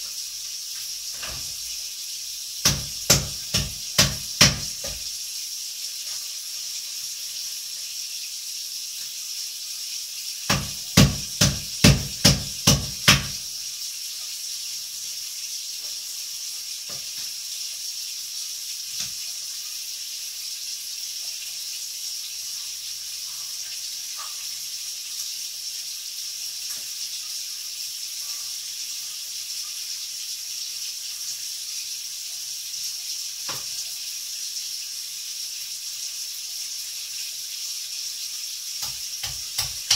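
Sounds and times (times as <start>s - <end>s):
steady high hiss: 0.0s - 39.9s
knife chopping on cutting board: 2.6s - 5.0s, 10.5s - 13.4s, 38.8s - 39.9s.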